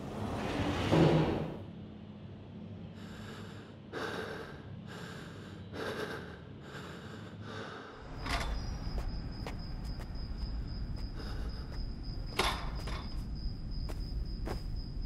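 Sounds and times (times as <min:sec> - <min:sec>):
low room hum: 0:00.0 - 0:15.0
man breathing deeply: 0:02.8 - 0:08.7, 0:10.6 - 0:12.4.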